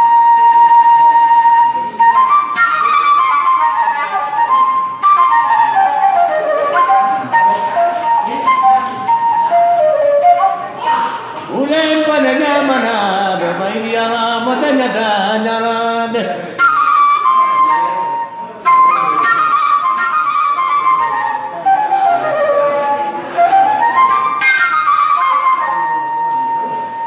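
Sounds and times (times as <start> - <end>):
end-blown flute melody: 0.0 - 11.2, 16.6 - 27.0
man singing: 11.5 - 16.5.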